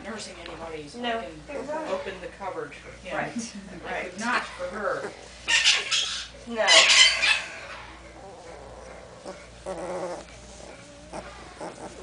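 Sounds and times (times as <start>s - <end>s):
puppy whining: 4.9s - 12.0s
puppies whimpering: 5.0s - 12.0s
puppy squealing: 5.5s - 12.0s.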